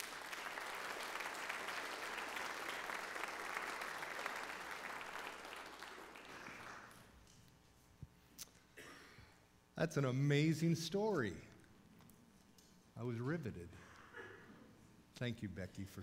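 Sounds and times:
congregation applauding: 0.0s - 7.2s.

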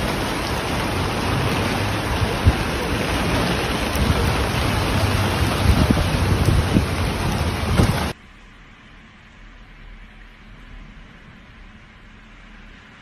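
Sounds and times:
gusty wind rumble: 0.0s - 8.2s
heavy rain hiss: 0.0s - 13.0s.

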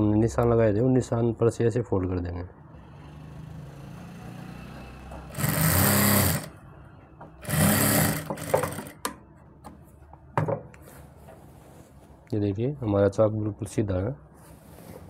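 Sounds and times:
electric sewing machine stitching: 2.8s - 6.6s, 7.4s - 9.0s.

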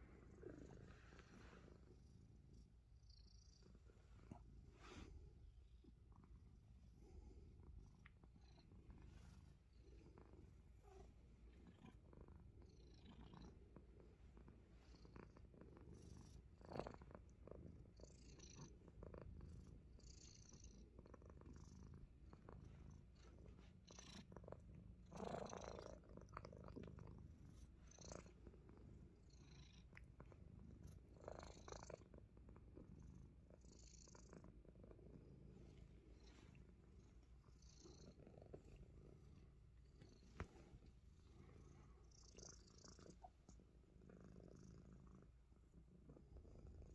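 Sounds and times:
cat purring: 0.0s - 46.9s
soft clicks and rustles: 38.5s - 41.2s.

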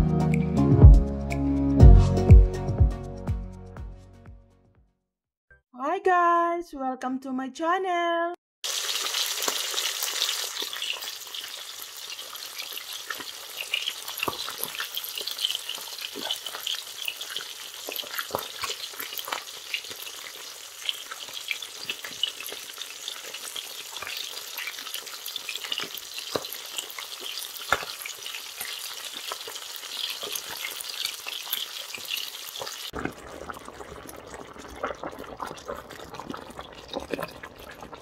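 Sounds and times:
fish sizzling in hot oil: 8.6s - 38.0s
oil crackling and popping: 8.6s - 38.0s.

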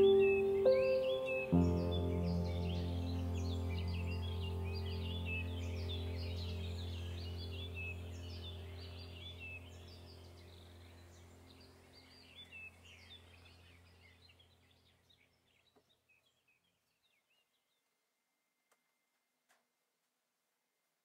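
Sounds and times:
birds chirping: 0.0s - 17.9s
steady low hum: 1.6s - 14.6s.

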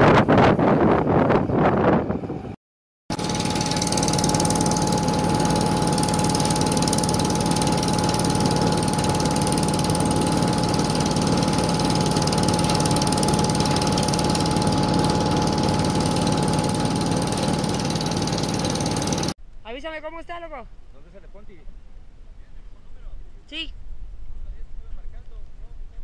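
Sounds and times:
fast mechanical rattle: 3.1s - 19.4s
pump engine running: 3.1s - 19.4s.

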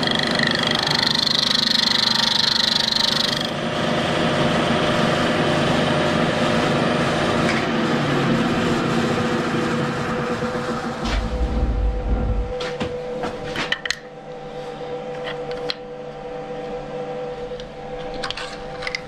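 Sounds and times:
machine spindle running: 0.0s - 3.6s, 10.7s - 12.8s
milling machine cutting whine: 0.0s - 3.7s, 10.4s - 13.0s.

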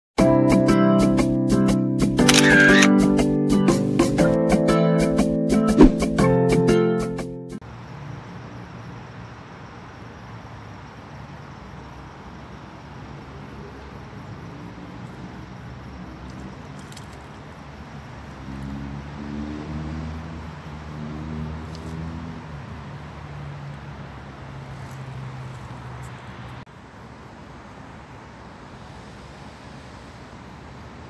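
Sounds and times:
outdoor background hiss: 7.6s - 31.0s.

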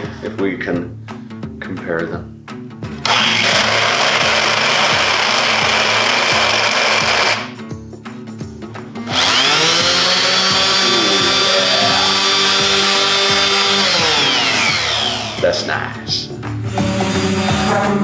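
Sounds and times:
electric sander whining: 3.0s - 7.5s, 9.1s - 15.4s.

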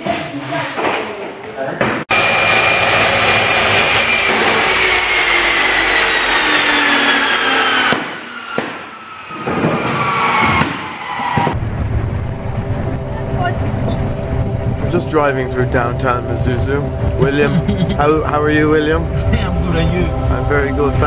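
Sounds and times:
chop saw cutting plastic pipe: 3.0s - 11.5s.

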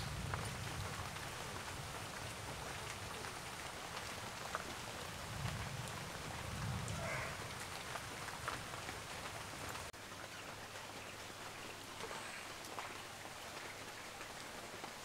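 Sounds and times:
rain hiss: 0.0s - 15.0s.

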